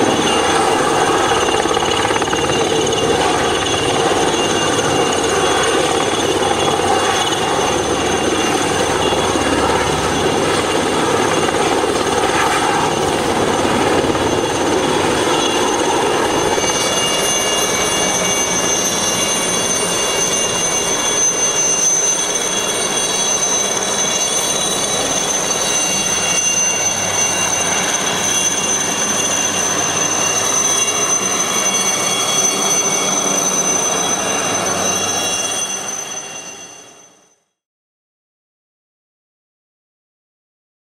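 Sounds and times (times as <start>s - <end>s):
high whine: 0.0s - 29.5s
helicopter rotor and engine drone: 0.0s - 37.6s.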